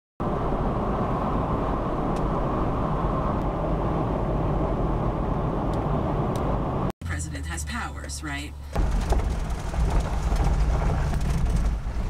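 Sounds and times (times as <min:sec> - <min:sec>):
car road and engine noise: 0:00.2 - 0:12.0.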